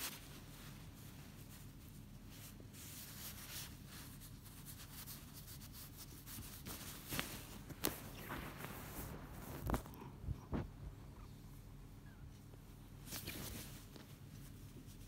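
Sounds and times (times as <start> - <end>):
hand stroking cat fur: 0.0 - 10.8
sleeping bag rustling: 6.3 - 10.7.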